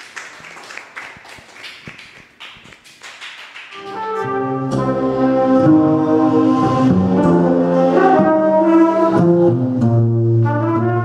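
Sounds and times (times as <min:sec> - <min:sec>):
hand clapping: 0:00.0 - 0:04.1
background music with held chords: 0:04.1 - 0:11.0.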